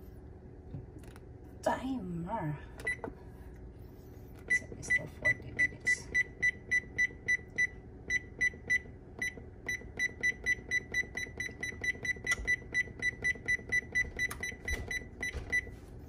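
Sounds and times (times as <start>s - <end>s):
oven control panel beeps: 2.8s - 3.0s, 4.5s - 15.7s.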